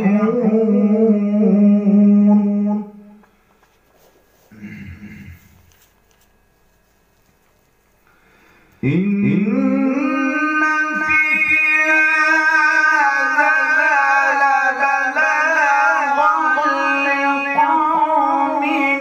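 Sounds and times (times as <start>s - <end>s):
man chanting melodically: 0.0s - 3.2s, 8.8s - 19.0s.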